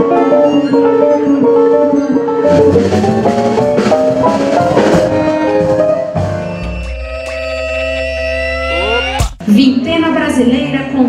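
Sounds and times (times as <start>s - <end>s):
plucked electric guitar melody: 0.0s - 7.9s
instrumental band music: 0.0s - 9.2s
drums and cymbals: 2.5s - 7.9s.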